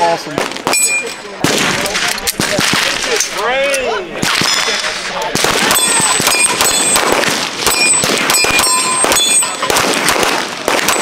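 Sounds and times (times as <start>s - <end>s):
steel targets clanging: 0.7s - 3.4s, 4.4s - 9.8s
handgun shots: 4.2s - 11.0s.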